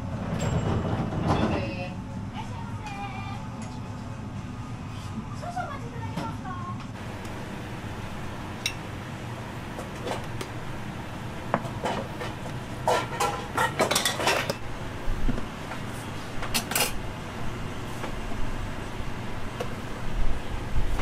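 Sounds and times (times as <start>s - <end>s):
steady low hum: 1.6s - 21.0s
kitchenware clattering: 11.6s - 14.6s, 16.4s - 17.0s.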